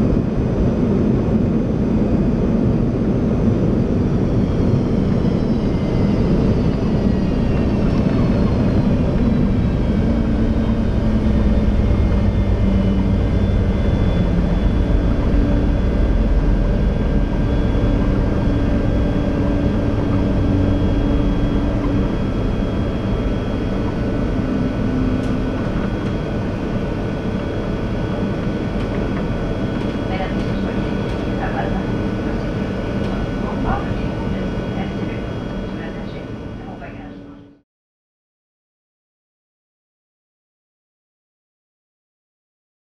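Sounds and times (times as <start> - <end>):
jet engine reverse thrust rumble: 0.0 - 37.6
high whine falling in pitch: 3.8 - 37.6.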